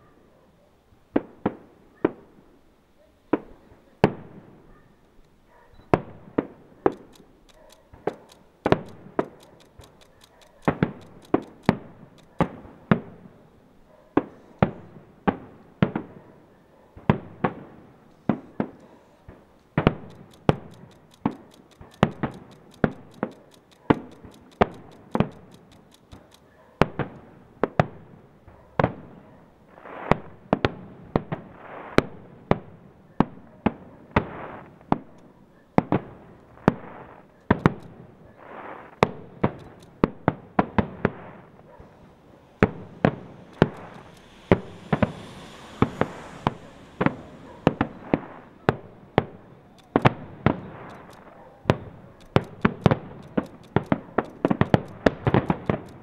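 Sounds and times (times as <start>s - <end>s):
firework shells bursting: 5.9s - 13.6s, 17.1s - 28.2s, 33.7s - 56.0s.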